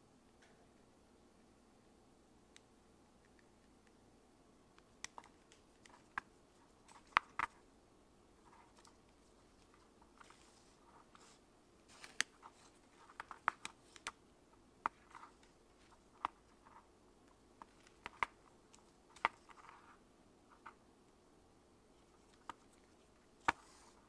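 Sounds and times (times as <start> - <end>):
thread rustling: 8.3 - 20.8, 21.9 - 24.0.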